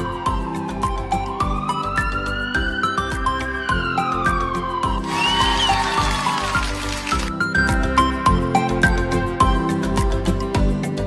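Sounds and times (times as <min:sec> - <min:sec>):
background music with steady beat: 0:00.0 - 0:11.0.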